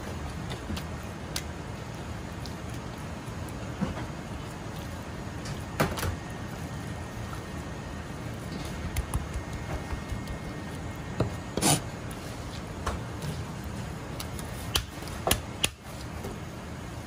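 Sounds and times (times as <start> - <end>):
steady background noise: 0.0 - 17.0.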